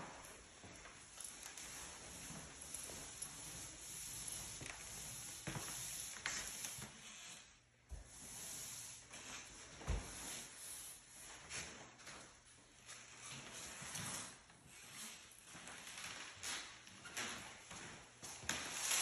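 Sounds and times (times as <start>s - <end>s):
footsteps on hardwood floor: 0.0s - 6.9s, 9.7s - 10.4s, 17.0s - 18.8s.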